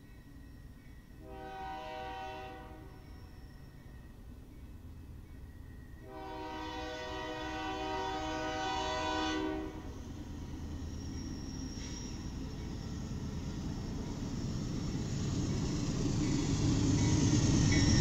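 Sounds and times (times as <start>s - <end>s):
train rumble: 0.0s - 18.0s
locomotive air horn: 1.2s - 3.0s, 6.0s - 9.9s.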